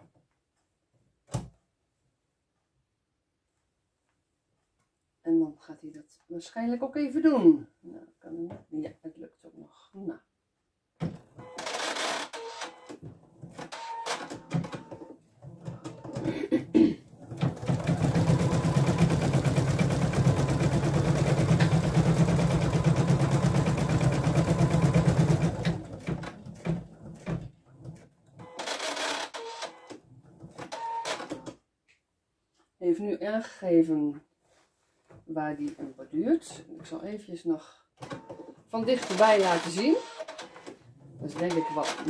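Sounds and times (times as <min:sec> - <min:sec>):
embroidery machine stitching: 0:11.5 - 0:12.8, 0:17.1 - 0:27.2, 0:38.2 - 0:40.7.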